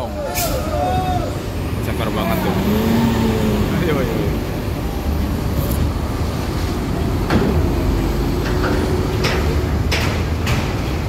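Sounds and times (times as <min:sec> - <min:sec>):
bus engine rumble: 0:00.0 - 0:11.0
sharp knocks: 0:08.4 - 0:11.0.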